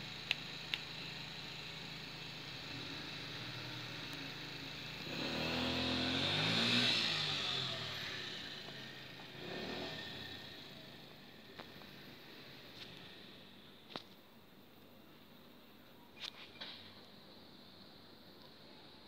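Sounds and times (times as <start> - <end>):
motor vehicle passing: 5.0 - 13.4.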